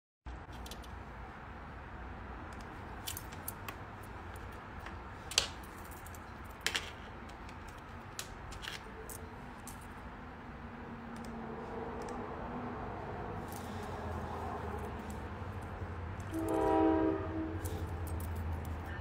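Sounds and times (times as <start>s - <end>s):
sharp clicks: 11.1s - 12.2s.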